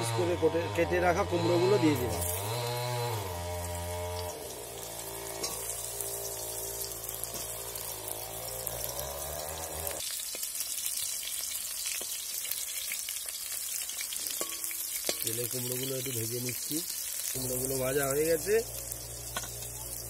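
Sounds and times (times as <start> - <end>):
metal spatula scraping pan: 1.6 - 2.4, 4.2 - 7.9
pumpkin sizzling in hot oil: 1.8 - 20.0.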